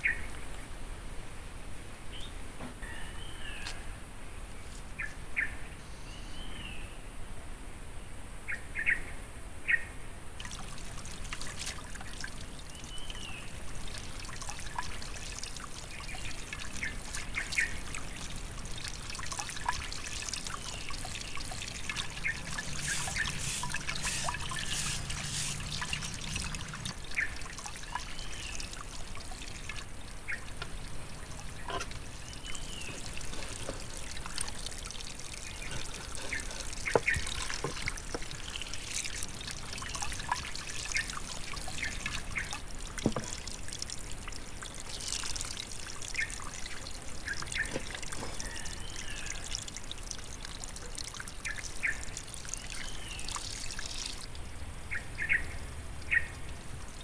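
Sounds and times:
water pouring into a basin: 10.4 - 54.4, 56.1 - 57.0.

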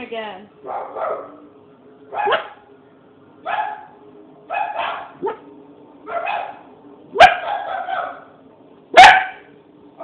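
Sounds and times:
dog barking: 0.6 - 1.4, 2.1 - 2.7, 3.4 - 5.5, 6.1 - 9.5.

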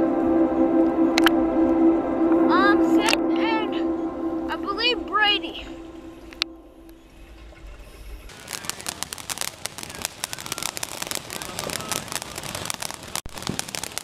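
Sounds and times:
muffled underwater rumble: 0.0 - 8.8
fireworks crackling: 6.2 - 14.0.

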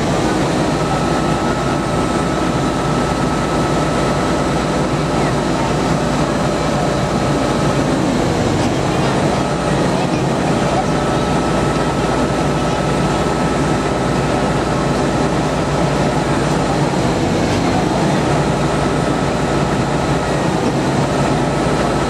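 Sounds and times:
diesel engine running: 0.0 - 22.0.

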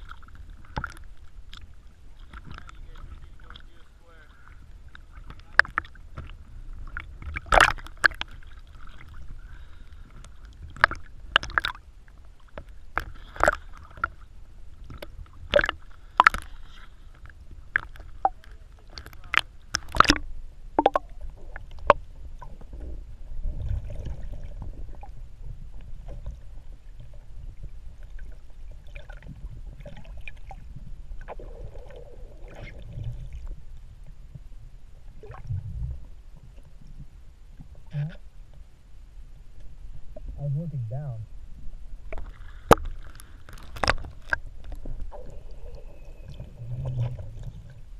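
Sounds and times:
underwater rumble and bubbles: 0.0 - 47.9.

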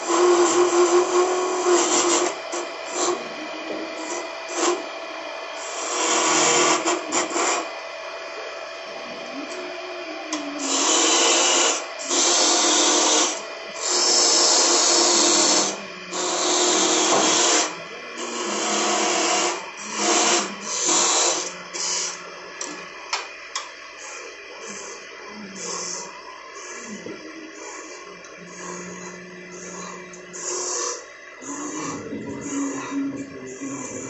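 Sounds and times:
chisel scraping spinning wood: 0.0 - 4.9, 5.6 - 7.7, 10.6 - 22.2, 26.7 - 34.0
wood lathe hum: 0.0 - 34.0.

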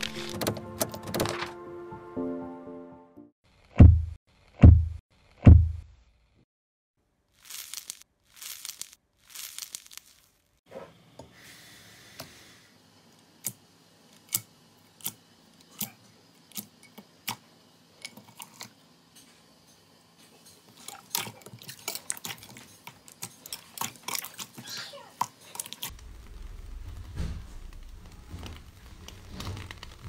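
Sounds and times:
deep booms falling in pitch: 25.9 - 28.6.

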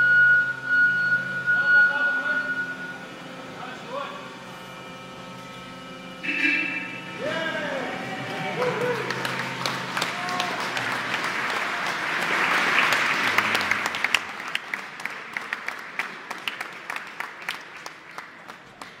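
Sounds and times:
crowd applauding: 6.3 - 19.0.

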